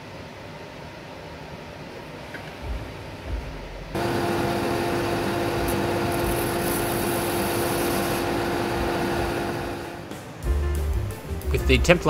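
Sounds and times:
belt sander motor hum: 0:04.0 - 0:10.1.

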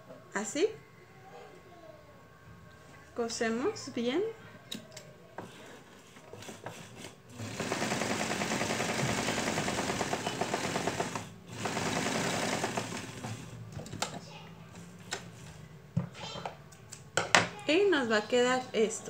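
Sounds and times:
sewing machine stitching: 0:06.4 - 0:13.6.

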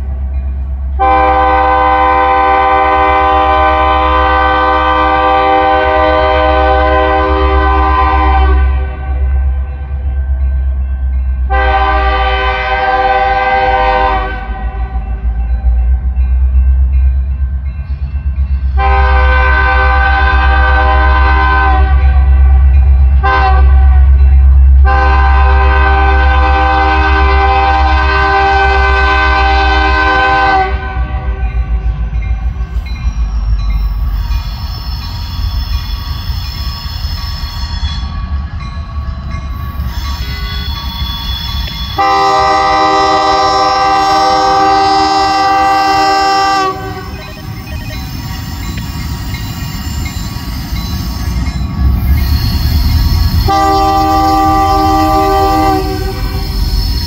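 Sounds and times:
locomotive air horn blasts: 0:01.0 - 0:09.2, 0:11.5 - 0:15.0, 0:18.8 - 0:22.6, 0:23.2 - 0:24.2, 0:24.8 - 0:31.4, 0:39.8 - 0:47.5, 0:52.3 - 0:57.0.

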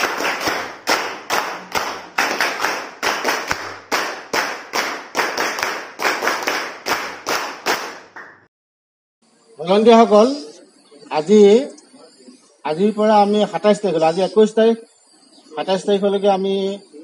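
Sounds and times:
group clapping in rhythm: 0:00.0 - 0:08.5.

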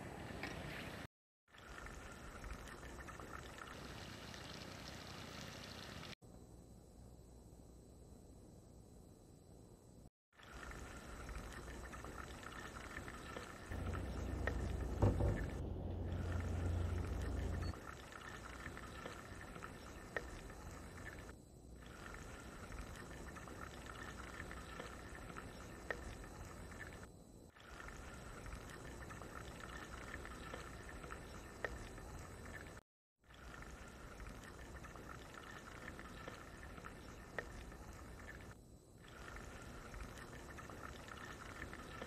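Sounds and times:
chicken frying in hot oil: 0:01.5 - 0:06.2, 0:10.3 - 0:42.0
low rumble: 0:13.7 - 0:17.8.

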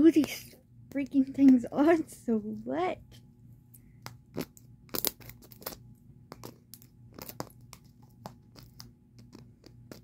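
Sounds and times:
plastic clicks and crinkles: 0:04.1 - 0:10.0.

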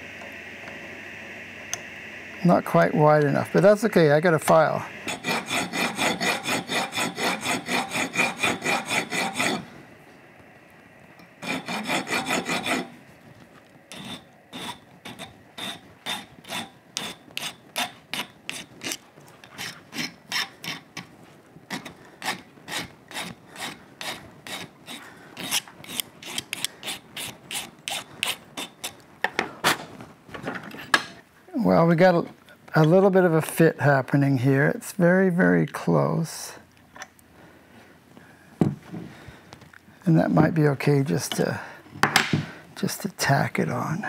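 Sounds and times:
hand file rasping on metal: 0:04.6 - 0:09.7, 0:11.4 - 0:13.0, 0:13.9 - 0:21.1, 0:21.7 - 0:29.0.

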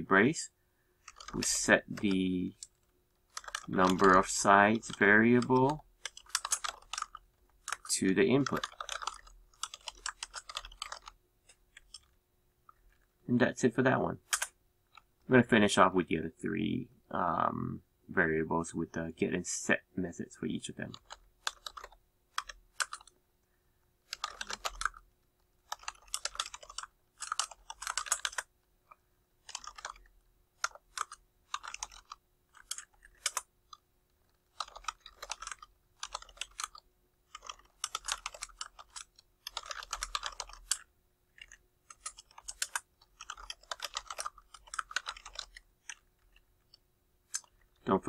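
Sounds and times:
computer keyboard typing: 0:01.0 - 0:12.1, 0:14.3 - 0:15.1, 0:20.9 - 0:23.2, 0:24.0 - 0:25.0, 0:25.6 - 0:28.5, 0:29.4 - 0:33.8, 0:34.4 - 0:47.8.

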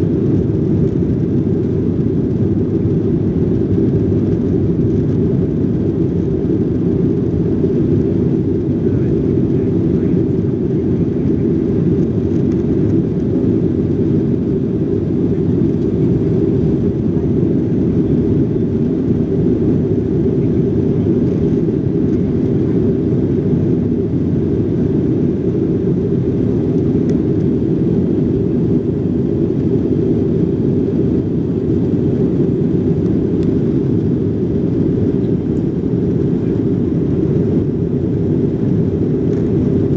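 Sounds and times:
jet engine cabin rumble: 0:00.0 - 0:39.9.

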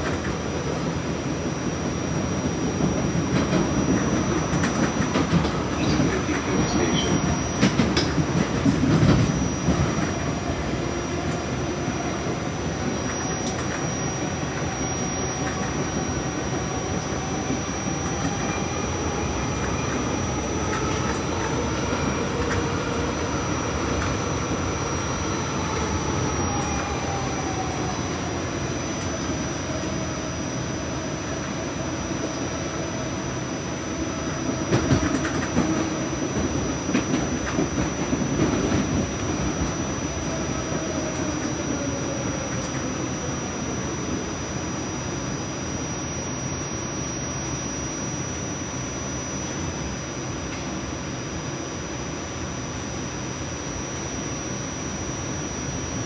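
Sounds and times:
train wheels rumbling on rail: 0:00.0 - 0:44.6
faint whine gliding in pitch: 0:00.0 - 0:56.0.

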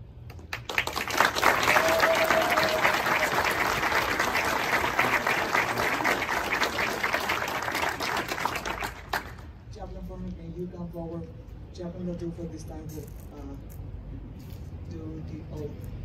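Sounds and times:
audience applauding: 0:00.3 - 0:09.5.

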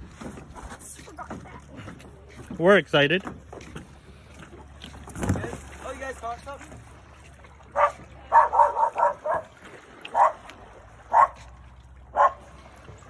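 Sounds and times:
dog barking: 0:07.8 - 0:09.5, 0:10.1 - 0:10.4, 0:11.1 - 0:11.4, 0:12.1 - 0:12.5.

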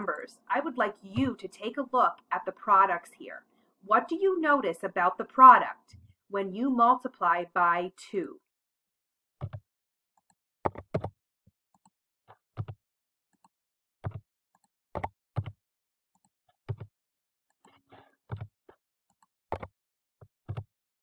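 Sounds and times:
keyboard and mouse clicks: 0:09.4 - 0:09.6, 0:10.2 - 0:11.2, 0:11.8 - 0:15.6, 0:16.2 - 0:16.9, 0:17.5 - 0:19.7, 0:20.4 - 0:20.7.

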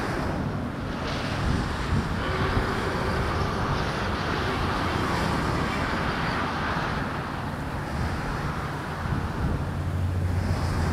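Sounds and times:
distant train rumble: 0:00.0 - 0:10.9
wind buffeting microphone: 0:00.0 - 0:10.9.

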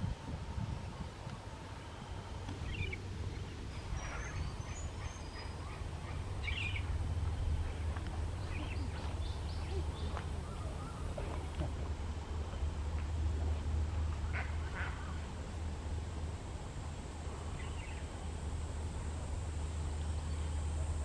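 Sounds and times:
steady low rumble: 0:00.0 - 0:21.0
bird calls and chirps: 0:02.6 - 0:11.5, 0:17.5 - 0:18.1.

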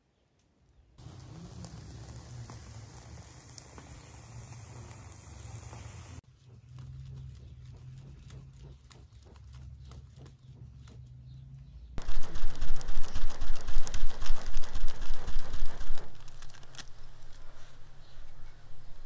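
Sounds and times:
hand fan whooshing: 0:12.0 - 0:19.0.

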